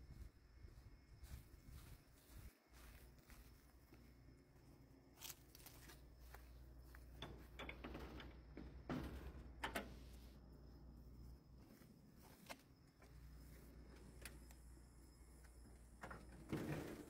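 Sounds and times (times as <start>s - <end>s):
faint scuffs and rustles: 0.1s - 4.2s, 5.1s - 7.2s, 11.6s - 13.8s.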